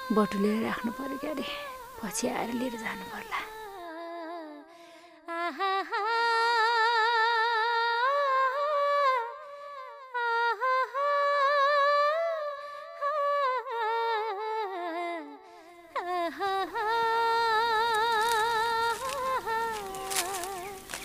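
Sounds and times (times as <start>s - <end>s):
person humming a slow melody: 0.0s - 4.6s, 16.0s - 21.0s.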